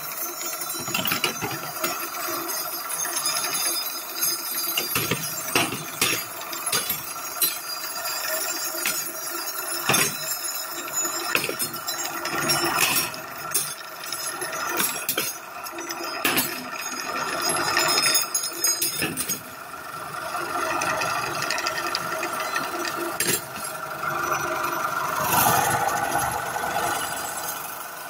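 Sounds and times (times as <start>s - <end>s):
cutlery rattling and clinking: 0.0s - 19.5s, 21.6s - 26.0s
polishing machine motor hum: 20.0s - 28.0s.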